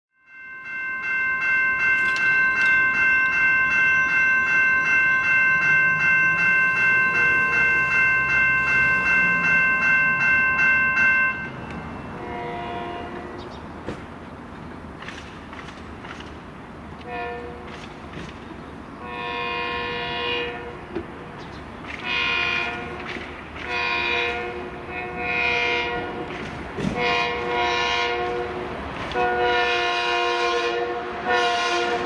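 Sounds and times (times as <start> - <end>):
crossing warning bell ringing: 0.2 - 13.5, 22.0 - 32.0
distant train horn blast: 12.1 - 13.5, 17.0 - 17.7, 19.0 - 20.8, 22.0 - 32.0.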